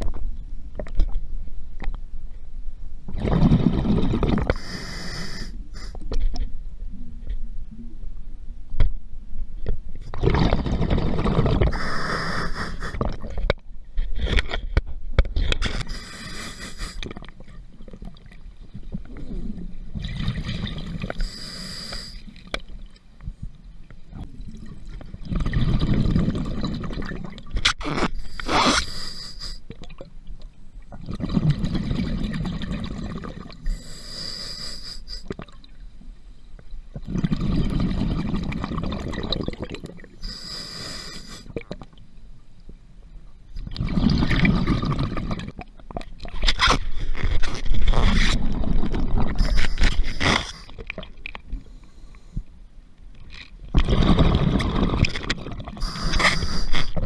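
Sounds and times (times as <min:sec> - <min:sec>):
exhaled bubbles rumbling: 0:03.1 - 0:05.4, 0:10.0 - 0:13.5, 0:17.0 - 0:21.4, 0:22.4 - 0:28.6, 0:30.8 - 0:33.8, 0:36.9 - 0:40.2, 0:43.6 - 0:46.5, 0:47.2 - 0:51.5, 0:53.7 - 0:57.0
hissing regulator inhale: 0:04.5 - 0:06.0, 0:11.7 - 0:13.0, 0:15.7 - 0:17.0, 0:21.2 - 0:22.3, 0:28.2 - 0:29.6, 0:33.7 - 0:35.3, 0:40.2 - 0:41.5, 0:55.8 - 0:57.0.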